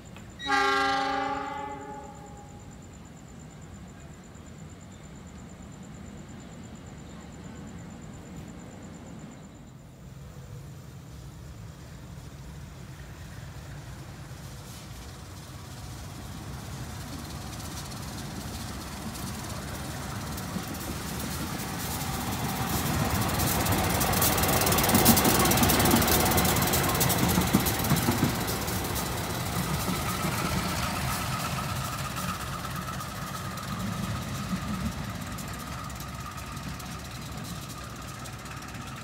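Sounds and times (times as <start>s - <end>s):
diesel locomotive engine: 0.0s - 39.0s
wheels clattering over rails: 14.0s - 39.0s.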